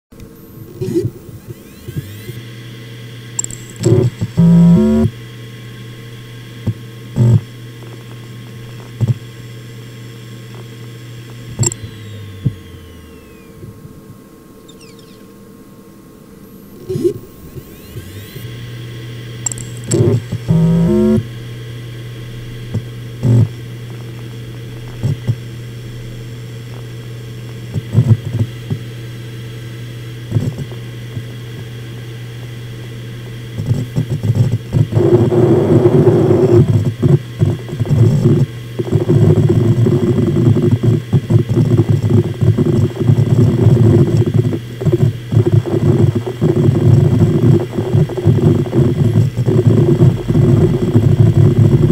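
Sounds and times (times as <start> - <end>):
hard drive humming: 0.1 - 51.9
hard drive seek chatter: 0.1 - 51.9
hard drive head clicks: 11.5 - 13.7.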